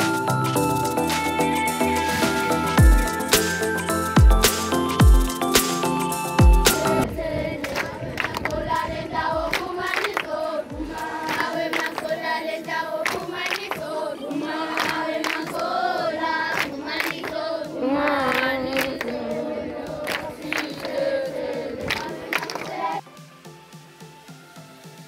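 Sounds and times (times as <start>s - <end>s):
hand claps: 2.7s - 7.0s, 7.6s - 8.6s, 9.5s - 10.4s, 11.0s - 12.4s, 13.0s - 14.0s, 14.6s - 15.7s, 16.5s - 17.5s, 18.1s - 21.0s, 21.8s - 23.0s
children's choir singing: 6.5s - 23.0s.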